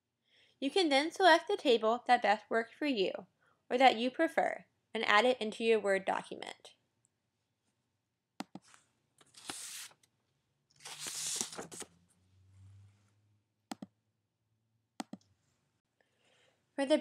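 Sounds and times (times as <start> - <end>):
computer mouse clicks: 8.4 - 8.8, 13.7 - 13.9, 15.0 - 15.3.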